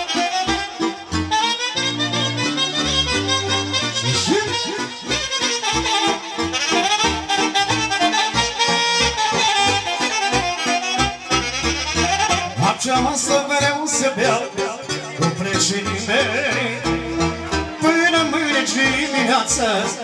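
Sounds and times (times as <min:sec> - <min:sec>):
saxophone: 0:00.0 - 0:13.7
electronic keyboard melody: 0:00.0 - 0:20.0
steady bass beat: 0:11.1 - 0:13.2.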